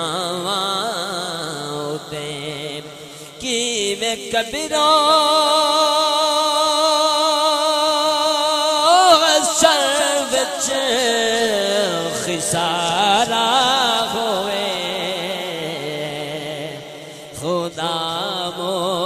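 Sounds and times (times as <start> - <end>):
man singing over loudspeaker: 0.0 - 19.0.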